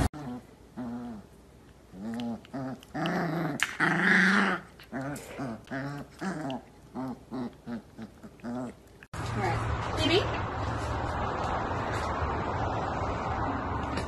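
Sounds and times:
dogs play-growling: 0.0 - 9.1.

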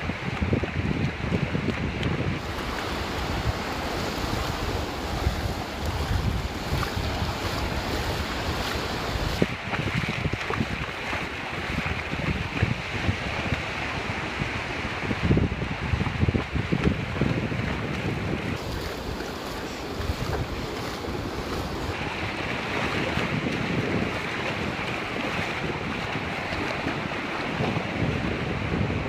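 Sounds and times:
wind buffeting microphone: 0.0 - 29.0
ocean surf hiss: 2.4 - 9.4, 18.6 - 22.4.

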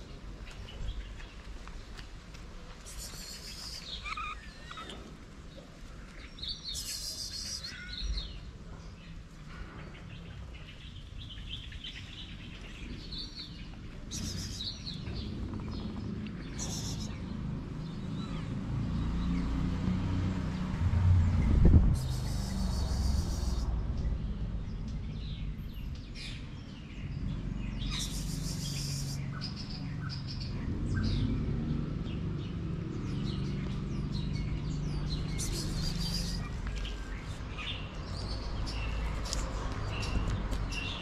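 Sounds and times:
small birds chirping: 2.8 - 19.6, 22.0 - 41.0
low outdoor rumble: 12.2 - 18.8.

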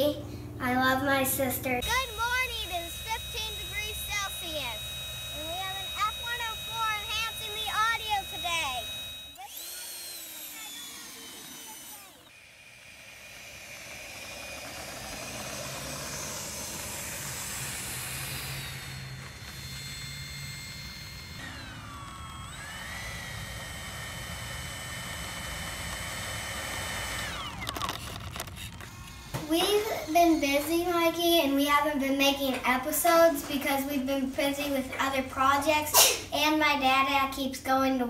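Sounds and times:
model jet electric fan whine: 0.0 - 32.2.

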